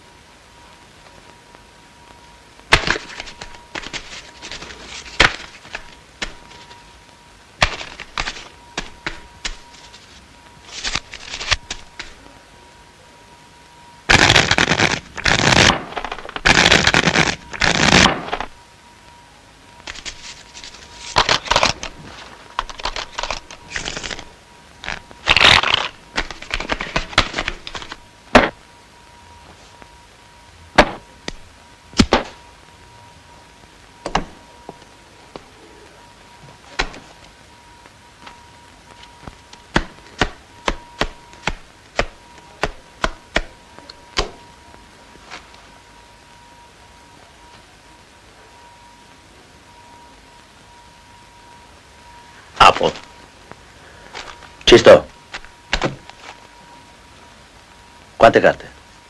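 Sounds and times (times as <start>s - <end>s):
cards riffling: 2.7s - 6.8s, 7.6s - 12.2s, 19.8s - 28.0s
cards snapping and clicking: 19.8s - 22.0s, 22.6s - 24.2s, 24.9s - 28.0s.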